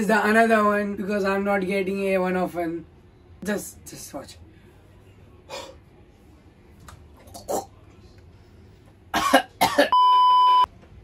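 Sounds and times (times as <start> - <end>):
boy coughing: 9.2 - 10.0
high beep tone: 9.9 - 10.7.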